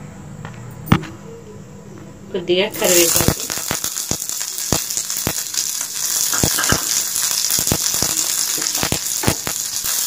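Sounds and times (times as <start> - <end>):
sizzling in hot oil: 2.7 - 10.0
oil spattering pops: 3.2 - 10.0.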